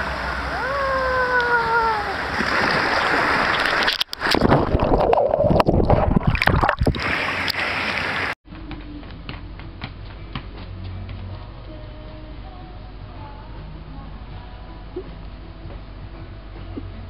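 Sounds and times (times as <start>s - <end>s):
water rushing and splashing: 0.0s - 8.4s.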